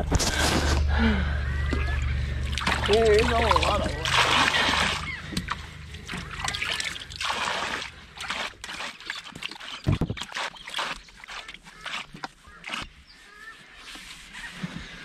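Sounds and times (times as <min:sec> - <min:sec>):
water splashing into shallows: 0:01.7 - 0:13.0.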